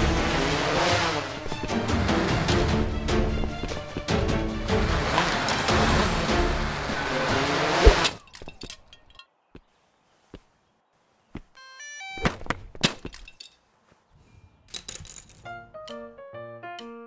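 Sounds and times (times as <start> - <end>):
music: 0.0 - 7.9, 15.4 - 17.0
clicks and small clatters: 14.7 - 15.6.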